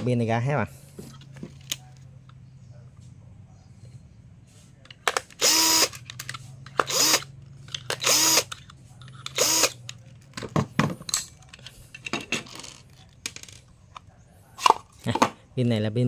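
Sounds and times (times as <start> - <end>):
cordless drill spinning: 5.4 - 6.0, 6.8 - 7.3, 7.9 - 8.5, 9.4 - 9.8.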